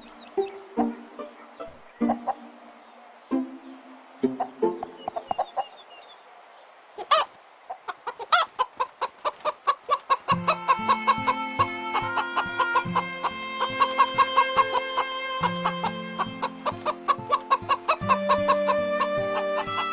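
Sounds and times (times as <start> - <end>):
cartoon chicken clucking: 0.4 - 2.5, 4.2 - 5.7, 7.0 - 19.9
chicken squawks: 7.0 - 19.9.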